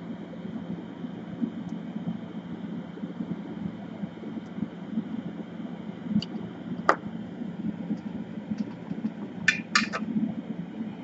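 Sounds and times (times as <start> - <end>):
fan humming: 0.0 - 11.0.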